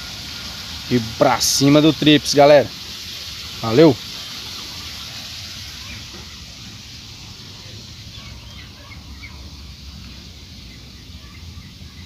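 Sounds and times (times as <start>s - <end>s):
steady hiss: 0.0s - 12.0s
faint bird chirps: 5.7s - 6.4s, 7.6s - 12.0s.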